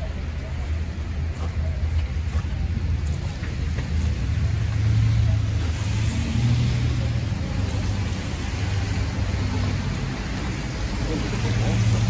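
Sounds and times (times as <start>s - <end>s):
street traffic rumble: 0.0s - 12.0s
car passing by: 3.9s - 12.0s.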